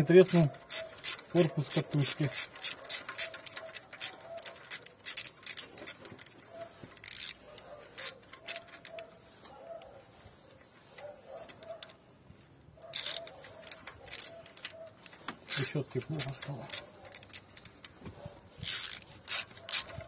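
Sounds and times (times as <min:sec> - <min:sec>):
socket ratchet clicking: 0:00.0 - 0:09.1, 0:12.8 - 0:18.0, 0:18.6 - 0:20.0.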